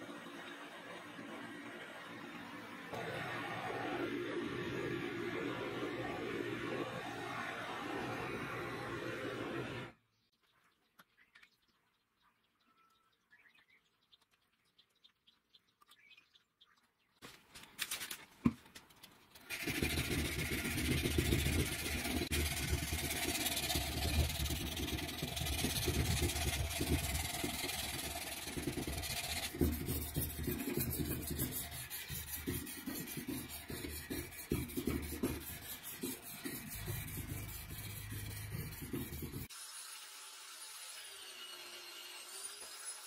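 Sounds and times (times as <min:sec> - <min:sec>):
hand file rasping on steel: 0:19.5 - 0:39.5.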